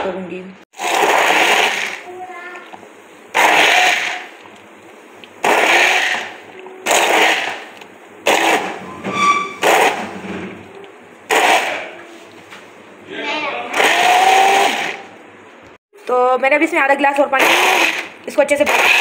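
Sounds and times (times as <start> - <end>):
hand blender bursts: 0.8 - 2.1, 3.3 - 4.3, 5.4 - 8.8, 11.3 - 11.8, 13.7 - 15.1, 17.4 - 19.0.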